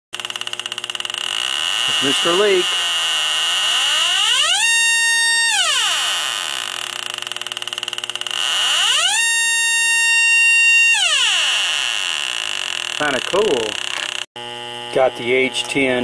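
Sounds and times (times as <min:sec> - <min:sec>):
fast ticking: 0:00.2 - 0:04.8, 0:05.5 - 0:09.3, 0:12.1 - 0:14.3
steady high whine: 0:00.2 - 0:16.0
electronic alarm tone gliding: 0:00.3 - 0:14.3.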